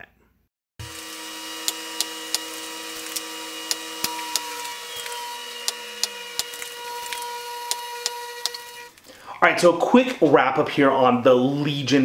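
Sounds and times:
steady hum: 0.8s - 9.0s.

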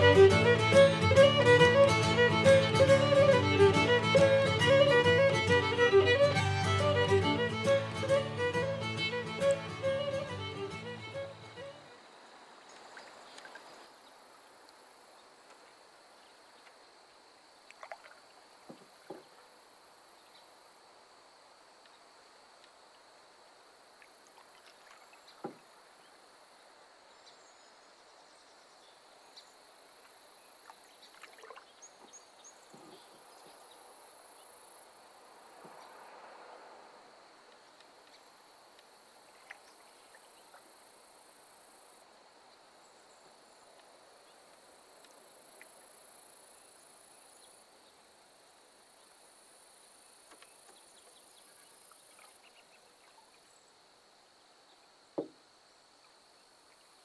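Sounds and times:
insects droning: 0.0s - 57.0s
canoe knocks: 18.7s - 19.3s, 25.4s - 25.6s, 55.2s - 55.4s
paddle swishing in water: 24.2s - 25.6s, 31.0s - 31.8s.

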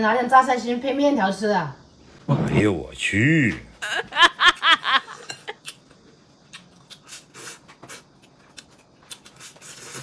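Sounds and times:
man slurping and chewing: 9.1s - 10.0s.

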